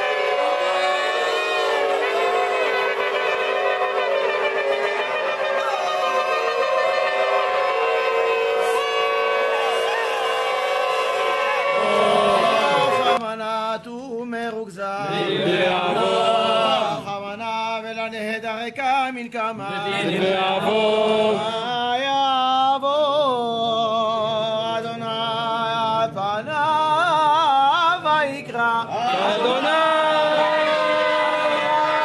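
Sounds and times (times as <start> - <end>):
crowd shouting: 0.0 - 13.2, 15.0 - 17.1, 19.7 - 21.7, 29.0 - 32.0
shofar blasts: 0.0 - 13.2, 29.4 - 32.0
men chanting prayer: 11.8 - 13.8, 14.8 - 18.0, 19.5 - 22.6, 23.3 - 32.0.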